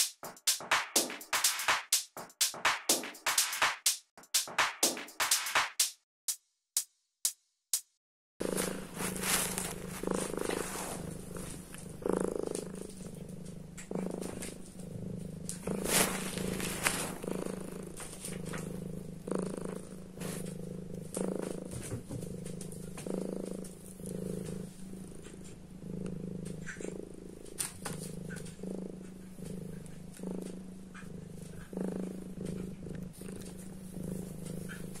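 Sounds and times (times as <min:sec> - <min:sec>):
fur rubbing on microphone: 0:08.4 - 0:13.2, 0:15.6 - 0:18.7, 0:20.2 - 0:20.5, 0:33.2 - 0:35.0
kitten purring: 0:08.4 - 0:35.0.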